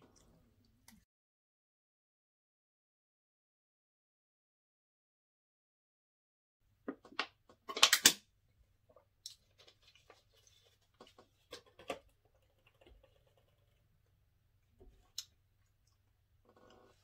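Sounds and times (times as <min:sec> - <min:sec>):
bottle cap clicks and crackles: 0:07.0 - 0:08.2.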